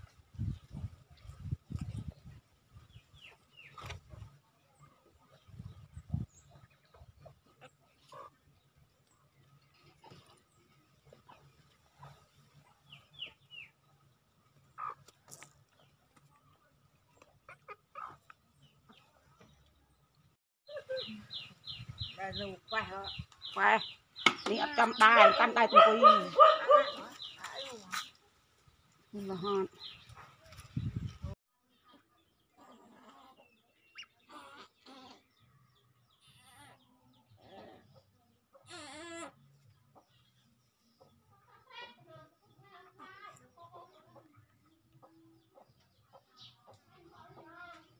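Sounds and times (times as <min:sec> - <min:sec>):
ducks calling: 0:23.1 - 0:28.1.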